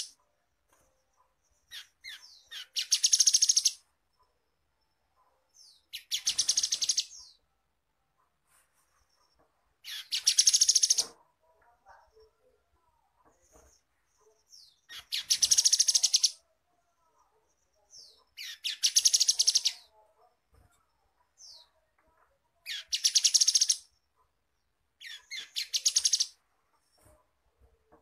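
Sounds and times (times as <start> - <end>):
bird singing trilled phrases: 1.5 - 3.8, 5.6 - 7.4, 9.8 - 11.0, 14.3 - 16.4, 17.8 - 19.9, 22.6 - 24.0, 25.0 - 26.4.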